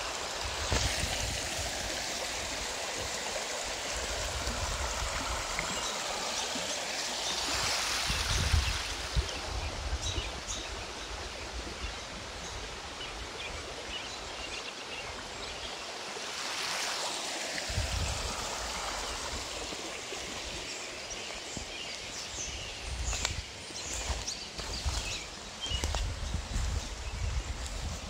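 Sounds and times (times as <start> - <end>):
stream rushing over stones: 0.0 - 28.0
footsteps crunching in dry leaves: 22.9 - 28.0.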